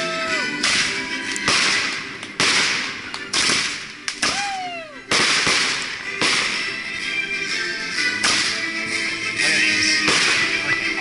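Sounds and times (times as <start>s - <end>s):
fireworks exploding: 0.6s - 6.7s, 10.0s - 10.8s.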